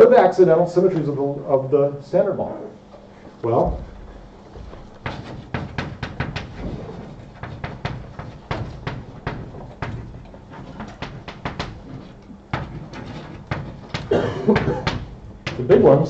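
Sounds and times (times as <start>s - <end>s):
chalk tapping and scraping: 4.5s - 16.0s.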